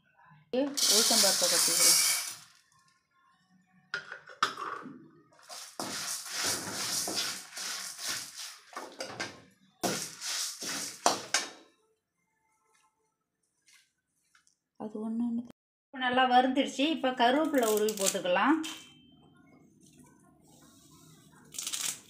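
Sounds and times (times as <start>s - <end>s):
dry lentils rattling on metal: 0.8s - 2.4s
spatula scraping metal pan: 0.8s - 2.4s, 5.5s - 8.8s, 9.8s - 11.3s.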